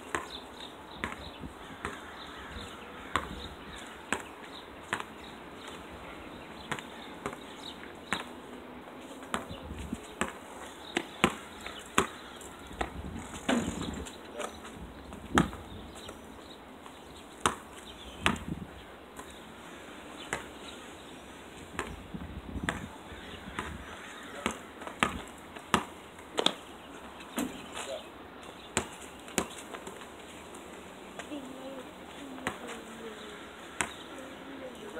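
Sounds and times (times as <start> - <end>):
basketball bouncing on asphalt: 0.1 - 0.4, 1.0 - 5.8, 6.6 - 8.3, 9.2 - 14.0, 15.1 - 16.1, 17.4 - 18.6, 20.2 - 20.6, 21.7 - 26.6, 28.7 - 30.1, 33.7 - 34.1.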